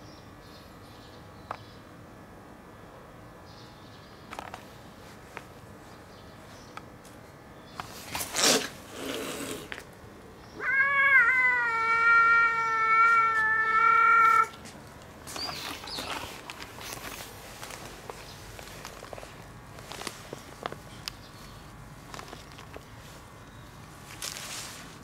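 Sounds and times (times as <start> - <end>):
cat yowling: 10.6 - 14.6.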